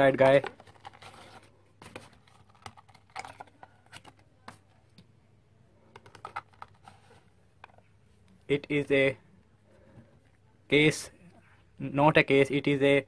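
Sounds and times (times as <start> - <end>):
hands handling cardboard box: 0.1 - 4.6.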